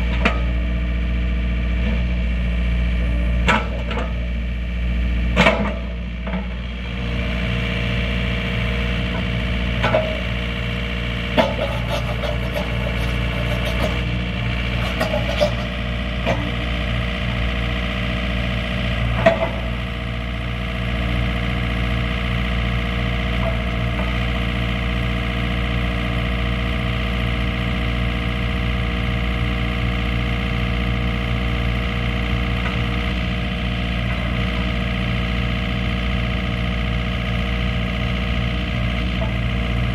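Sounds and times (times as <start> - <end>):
excavator diesel engine running: 0.0 - 39.9
sharp metal clanks and knocks: 11.4 - 14.0, 14.7 - 16.5.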